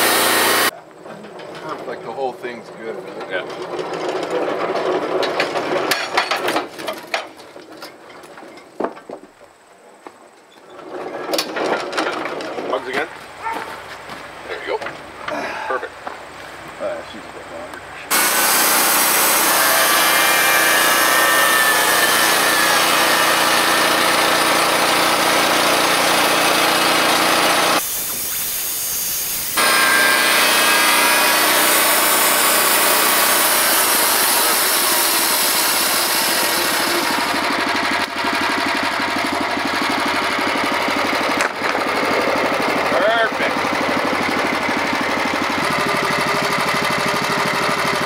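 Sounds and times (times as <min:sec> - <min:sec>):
gas engine running: 0:00.0 - 0:00.7, 0:22.4 - 0:27.8, 0:31.6 - 0:48.0
saw blade hissing through wood: 0:00.0 - 0:00.7, 0:18.1 - 0:38.0.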